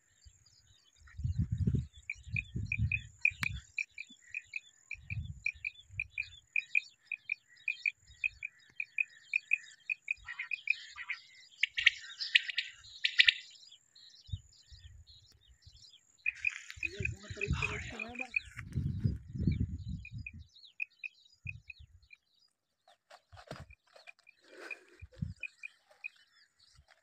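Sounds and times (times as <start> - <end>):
quail calling: 2.7 - 13.4, 16.3 - 18.6.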